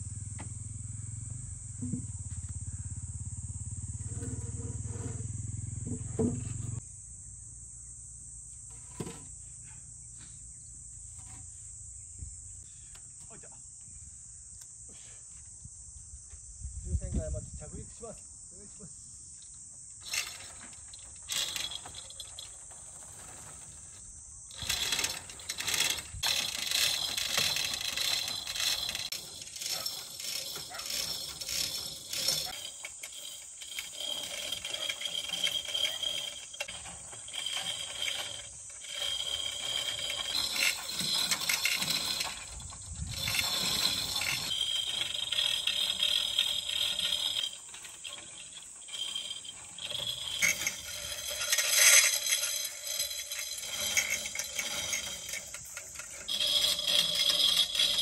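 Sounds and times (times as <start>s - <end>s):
high insect drone: 0.0s - 58.0s
chain hoists rattling and clicking: 1.3s - 6.8s, 20.0s - 58.0s.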